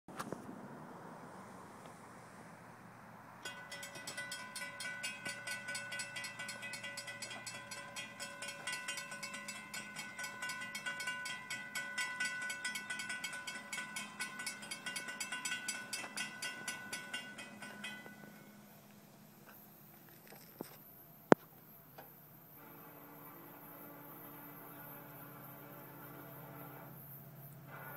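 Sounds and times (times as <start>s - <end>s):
railroad crossing bell ringing: 3.4s - 19.3s.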